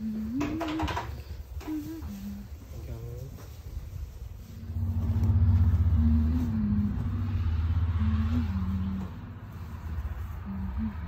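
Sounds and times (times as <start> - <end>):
vehicle engine rumble: 0.0 - 11.0
wavering hum: 4.4 - 11.0.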